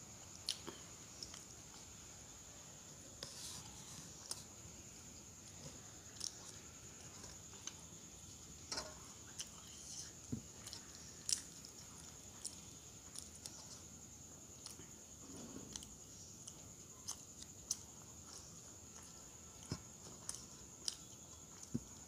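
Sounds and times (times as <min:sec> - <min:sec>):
faint high-pitched whine: 0:00.0 - 0:22.0
person chewing: 0:05.4 - 0:08.0, 0:08.6 - 0:14.9, 0:15.7 - 0:22.0.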